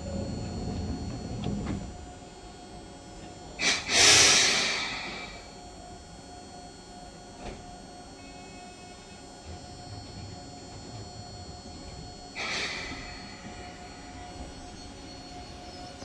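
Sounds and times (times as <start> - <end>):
electric train humming: 0.0 - 16.0
loud hiss: 3.6 - 5.2.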